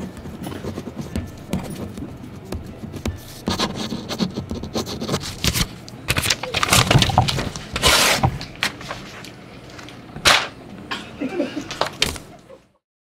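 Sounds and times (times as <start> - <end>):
paper rustling: 3.1 - 9.9.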